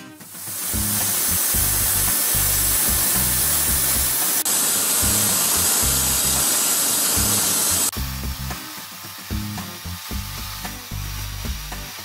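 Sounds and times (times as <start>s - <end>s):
band saw cutting log: 0.7s - 12.0s
background music with pulsing bass: 8.0s - 8.7s, 9.3s - 12.0s.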